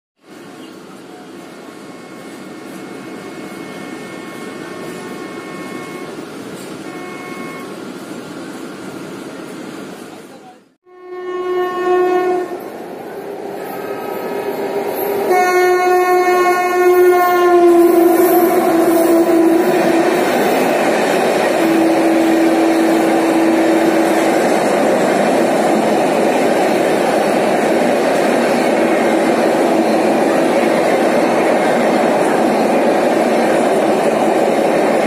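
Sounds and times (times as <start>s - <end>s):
rumble of oncoming train: 0.2s - 35.0s
locomotive horn blasts: 3.5s - 6.1s, 6.8s - 7.7s, 10.9s - 12.7s, 13.6s - 20.4s, 21.5s - 24.5s.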